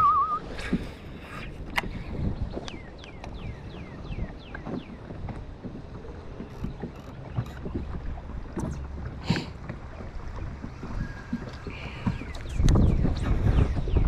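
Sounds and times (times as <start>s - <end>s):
bird whistling: 0.0s - 0.4s
fishing boat engine rumble: 0.0s - 14.0s
wind on microphone: 0.0s - 14.0s
small knocks and clicks: 6.4s - 9.1s.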